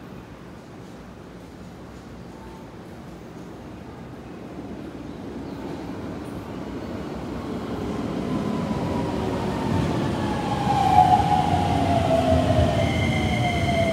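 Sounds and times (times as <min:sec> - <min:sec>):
train rumble: 0:00.4 - 0:13.9
train whine sliding down in pitch: 0:08.2 - 0:13.9.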